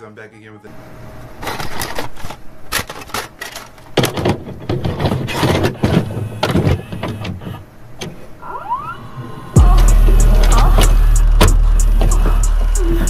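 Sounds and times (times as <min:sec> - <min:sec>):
rising sweeps: 0:08.5 - 0:13.0
static bursts: 0:09.6 - 0:13.0.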